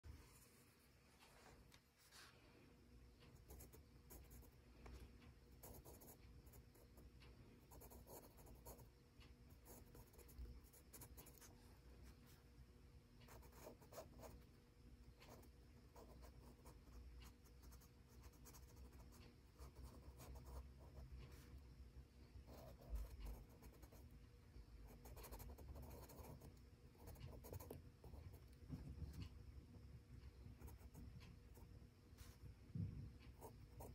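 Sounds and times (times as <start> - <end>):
pencil scratching on paper: 5.6 - 7.1, 7.7 - 8.9, 9.5 - 11.6, 13.3 - 14.4, 15.2 - 21.6, 22.5 - 24.1, 24.9 - 28.5.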